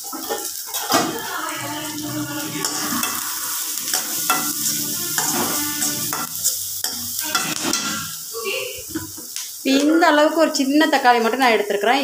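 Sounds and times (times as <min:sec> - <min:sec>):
oil sizzling: 0:00.0 - 0:12.0
ladle scraping and knocking pan: 0:01.9 - 0:03.3, 0:03.9 - 0:08.2.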